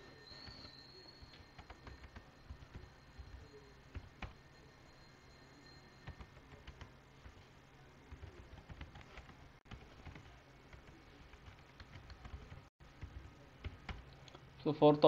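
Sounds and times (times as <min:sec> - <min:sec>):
typing on computer keyboard: 0:00.4 - 0:04.4, 0:08.1 - 0:14.1.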